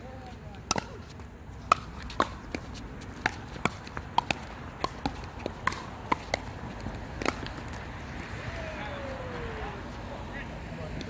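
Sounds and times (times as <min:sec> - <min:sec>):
paddles hitting plastic ball: 0:00.6 - 0:07.9.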